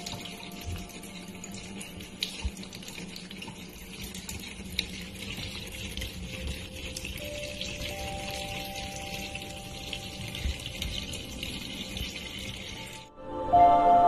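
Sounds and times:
tap running into sink: 0.0 - 8.0.

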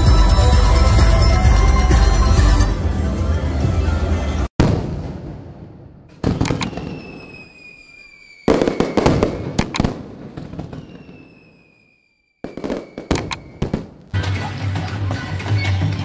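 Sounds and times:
fireworks bangs with crackling: 4.6 - 14.3
thin falling whistle: 6.5 - 9.6, 10.7 - 13.7.

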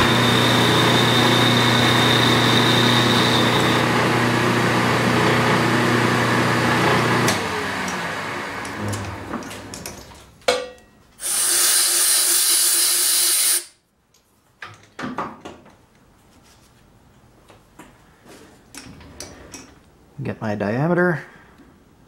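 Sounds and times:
lathe spindle humming: 0.0 - 9.7
loud hiss: 11.2 - 13.8.

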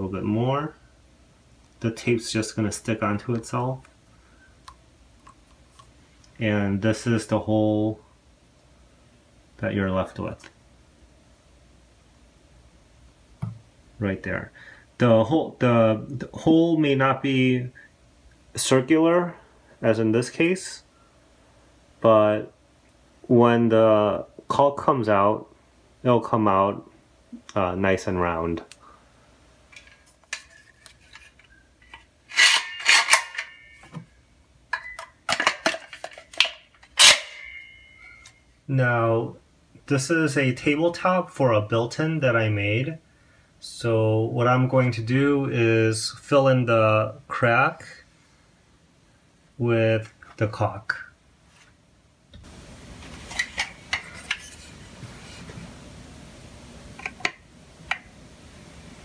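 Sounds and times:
low room hum: 0.0 - 59.0
metal caulking gun clanking: 29.8 - 34.0, 34.7 - 37.6.

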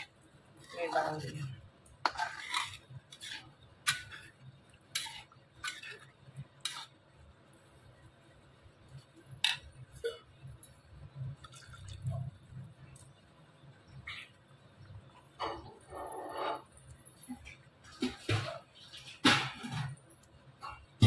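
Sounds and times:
metal spatula scraping a metal pot: 0.6 - 7.0, 15.4 - 16.8.

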